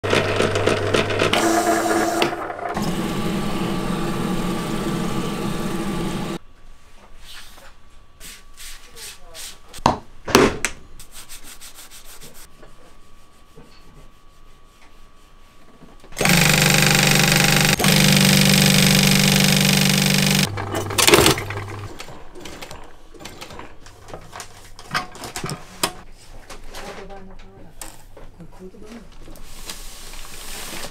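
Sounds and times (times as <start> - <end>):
sewing machine clicking: 16.2 - 22.1.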